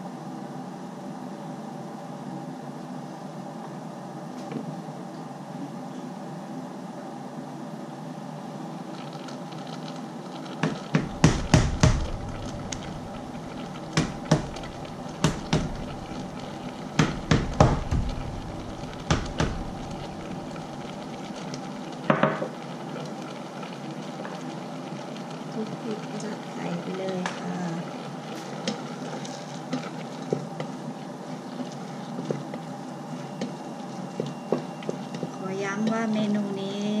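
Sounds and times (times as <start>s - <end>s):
steady hum: 0.0s - 37.0s.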